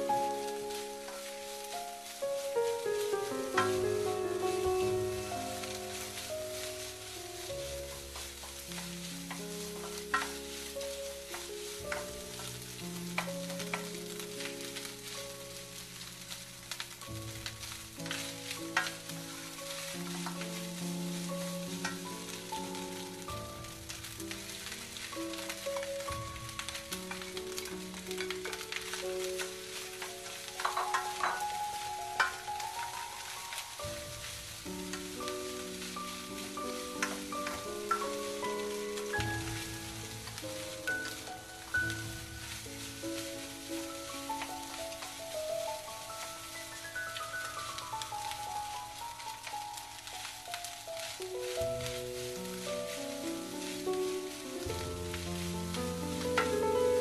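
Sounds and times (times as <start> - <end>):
rice sizzling in a wok: 0.0 - 57.0
slow background music: 0.0 - 57.0
spatula scraping a wok: 0.4 - 45.0
spatula scraping a pan: 5.6 - 15.2, 26.4 - 33.3.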